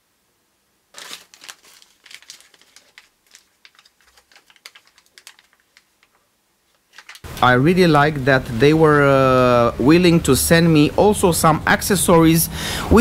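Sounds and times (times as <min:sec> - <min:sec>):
packaging crinkling and rustling: 0:00.9 - 0:07.3.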